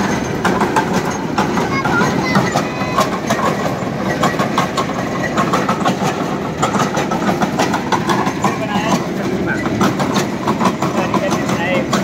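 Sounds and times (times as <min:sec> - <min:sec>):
engine droning: 0:00.0 - 0:12.0
metallic clanks and rattles: 0:00.0 - 0:12.0.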